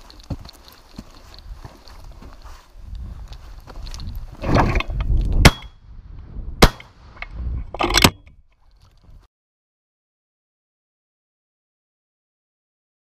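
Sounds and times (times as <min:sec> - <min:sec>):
shotgun shots: 0:05.4 - 0:05.7, 0:06.6 - 0:06.9.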